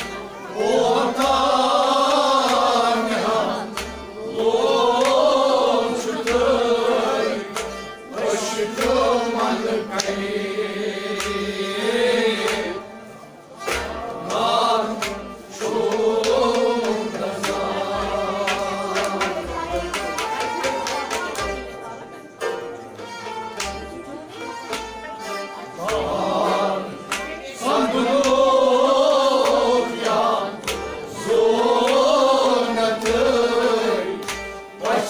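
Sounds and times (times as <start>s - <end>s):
harmonium: 0.0s - 35.0s
steady percussive beat: 0.0s - 35.0s
men singing: 0.6s - 12.8s, 14.1s - 19.4s, 25.7s - 35.0s.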